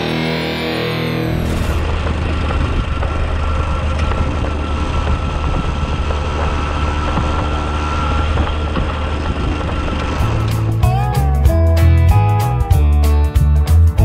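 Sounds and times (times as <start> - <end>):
moped engine running: 0.0 - 12.5
wind noise on microphone: 1.5 - 10.9.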